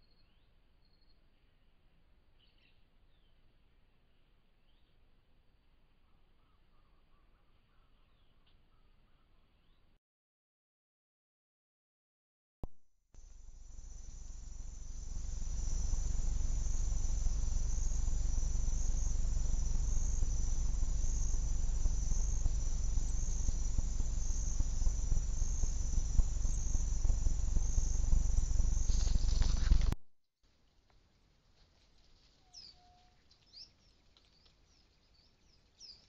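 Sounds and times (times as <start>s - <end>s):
crickets trilling: 13.2s - 30.0s
low rumble: 13.2s - 30.0s.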